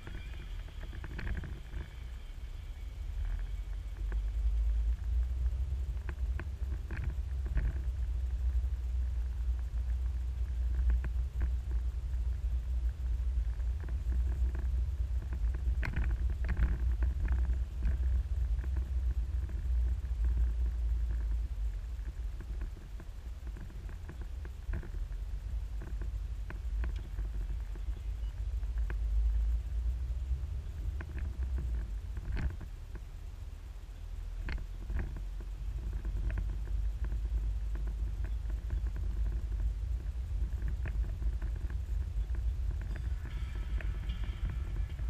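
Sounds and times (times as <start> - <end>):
car engine and tyres rumble: 0.0 - 45.0
light knocks and rattles: 34.4 - 45.0.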